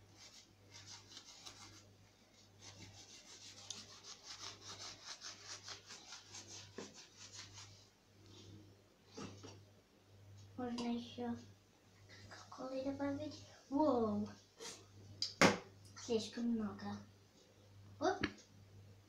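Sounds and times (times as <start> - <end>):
low steady hum: 0.0 - 19.0
sponge scrubbing metal: 2.6 - 7.8.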